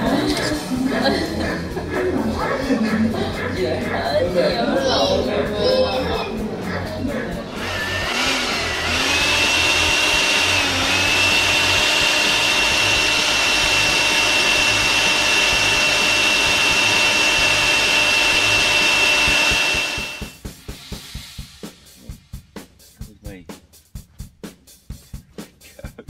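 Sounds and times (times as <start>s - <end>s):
leaf blower whining: 7.4s - 20.4s.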